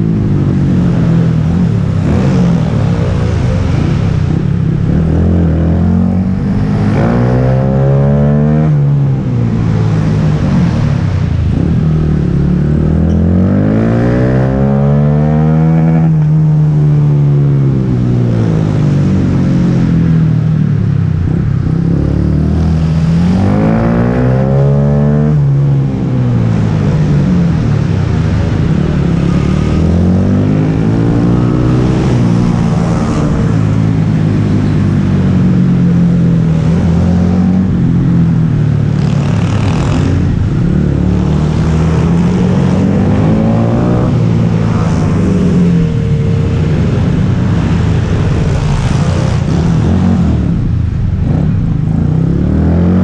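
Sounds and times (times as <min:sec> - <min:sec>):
small motorcycle engine revving: 0:38.9 - 0:40.4.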